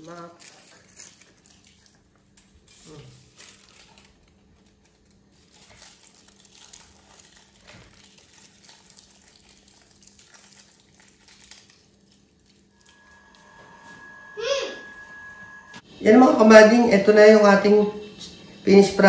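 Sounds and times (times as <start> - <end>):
aluminium foil crinkling: 0.0 - 13.3
low steady hum: 0.0 - 19.0.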